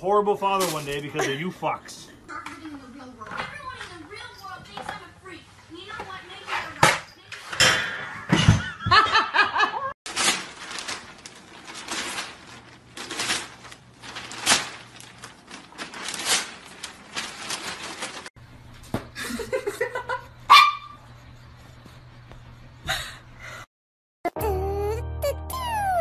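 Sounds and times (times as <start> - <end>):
newspaper crinkling and rustling: 10.1 - 18.3
small dog whining: 24.3 - 26.0.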